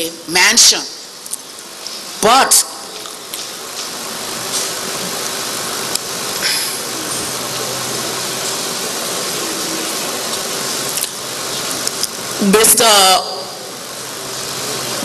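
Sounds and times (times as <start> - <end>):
even hiss: 3.1 - 15.0.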